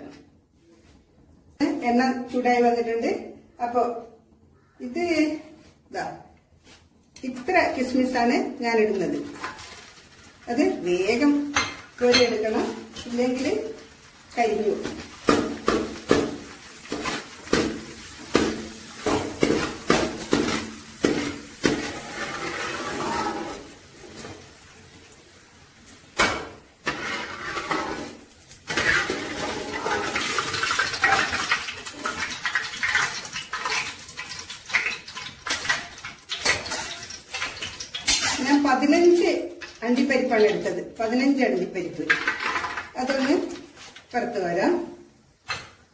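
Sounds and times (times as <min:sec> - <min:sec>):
nuts frying in hot oil: 0:07.3 - 0:45.9
metal spoon scraping a pan: 0:16.8 - 0:23.7, 0:26.8 - 0:31.4, 0:33.5 - 0:40.6.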